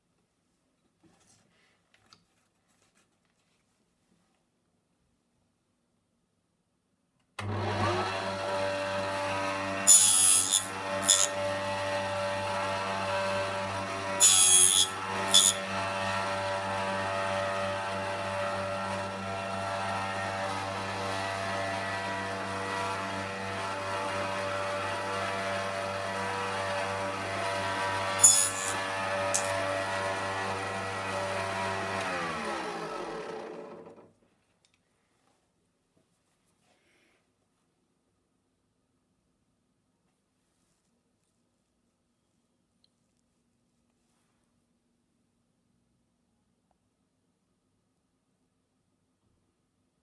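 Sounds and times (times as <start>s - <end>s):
table saw running: 7.4s - 34.1s
saw blade cutting wood strips: 7.7s - 33.6s.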